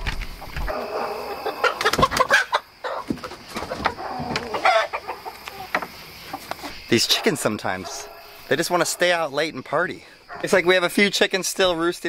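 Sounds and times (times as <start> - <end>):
chickens clucking and calling: 0.3 - 9.2.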